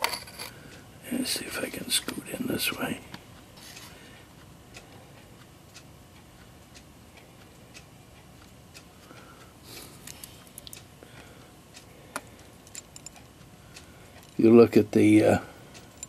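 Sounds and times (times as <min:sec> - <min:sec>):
clock ticking: 0:04.1 - 0:09.6
quick clicks of clock movement: 0:10.0 - 0:14.4.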